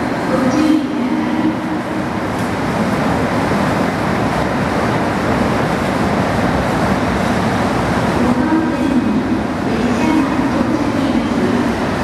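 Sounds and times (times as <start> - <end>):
diesel train engine: 0.0 - 12.0
train wheels on rails: 0.0 - 12.0.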